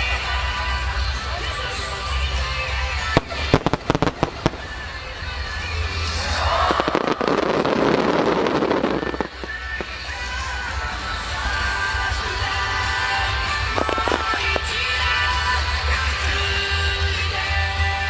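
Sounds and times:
music playing: 0.0s - 18.0s
firework shells bursting: 3.2s - 4.8s, 13.8s - 14.7s.

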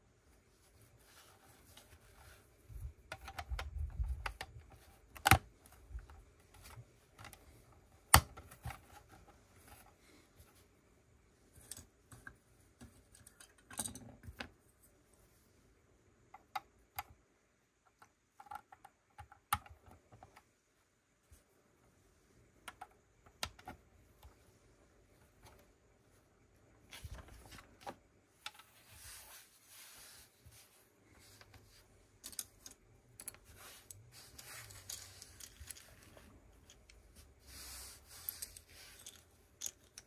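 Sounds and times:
plastic building bricks clicking: 3.0s - 7.5s.

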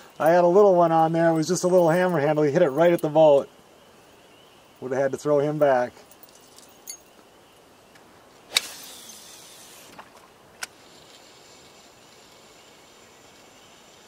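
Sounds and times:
fishing line hissing off spool: 8.5s - 14.0s.

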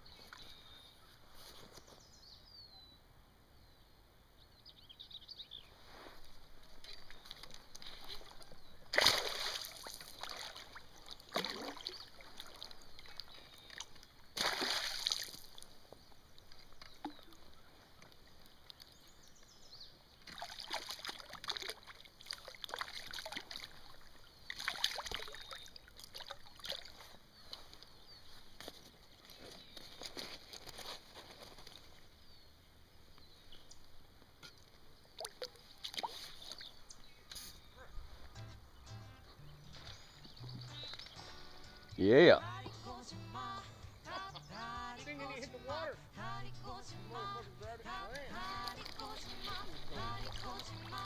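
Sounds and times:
fish splashing at water surface: 6.9s - 15.7s, 20.3s - 27.0s.

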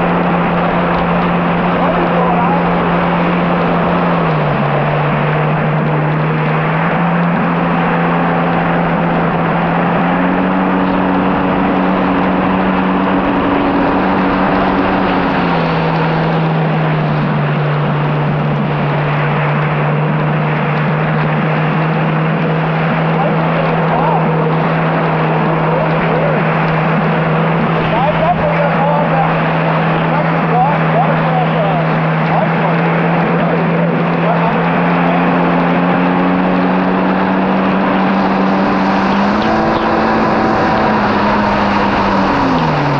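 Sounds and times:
jet ski engine at speed: 0.0s - 42.9s
water and wind rushing: 0.0s - 42.9s.

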